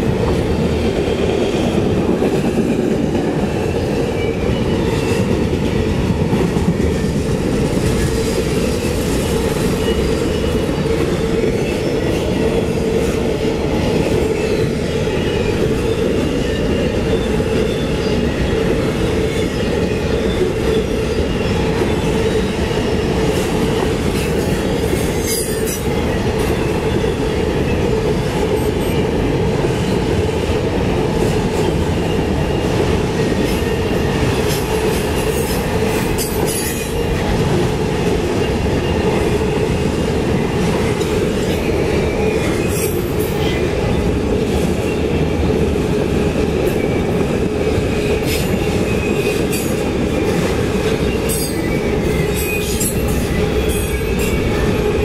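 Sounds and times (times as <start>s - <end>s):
train wheels rumbling on rails: 0.0s - 55.0s.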